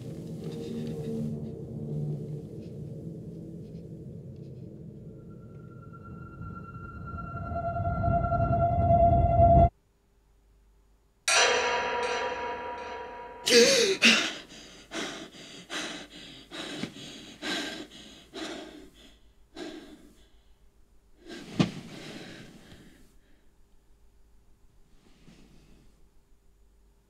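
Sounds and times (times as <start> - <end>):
loud piercing sound: 5.0 - 9.7
woman gasping: 13.4 - 20.4
heavy panting breaths: 13.5 - 20.6, 21.2 - 23.5.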